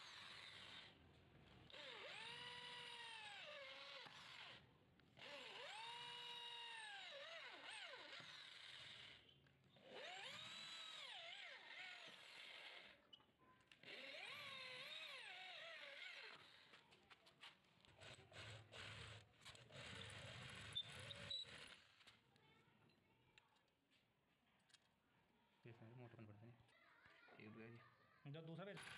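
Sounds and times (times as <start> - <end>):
electric drill whining: 0.0 - 13.1, 13.7 - 17.1, 18.0 - 22.2, 28.6 - 28.9.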